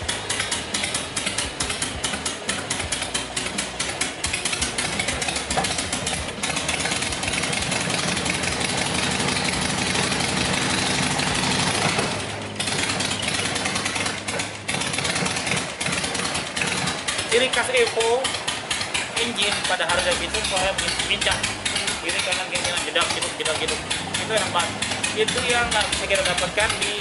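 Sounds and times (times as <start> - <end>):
motorcycle engine idling and revving: 0.0 - 27.0.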